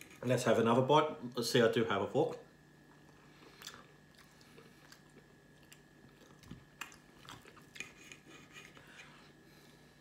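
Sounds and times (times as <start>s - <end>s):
faint steady hum: 0.0s - 10.0s
chewing food: 2.8s - 9.3s.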